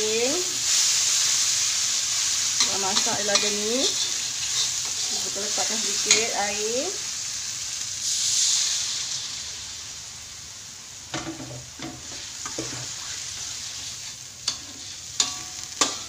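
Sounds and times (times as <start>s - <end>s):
paste sizzling in hot oil: 0.0s - 16.0s
metal spatula scraping wok: 2.2s - 6.6s, 11.8s - 16.0s.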